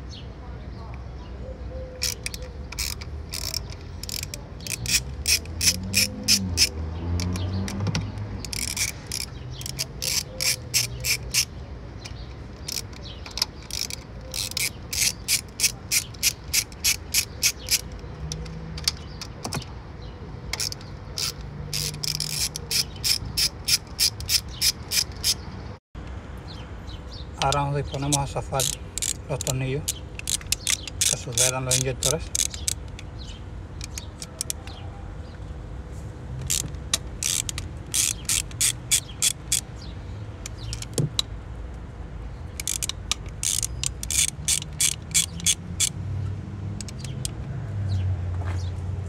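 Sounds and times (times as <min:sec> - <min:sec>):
hand ratchet clicking: 0:02.0 - 0:19.4, 0:20.5 - 0:25.4, 0:27.4 - 0:33.1, 0:33.8 - 0:34.6, 0:36.4 - 0:39.7, 0:40.4 - 0:41.3, 0:42.6 - 0:46.0, 0:46.7 - 0:47.4.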